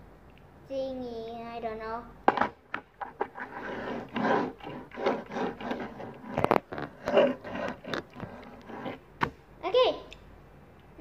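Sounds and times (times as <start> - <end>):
toy rubbing scrapes on tabletop: 2.3 - 9.1.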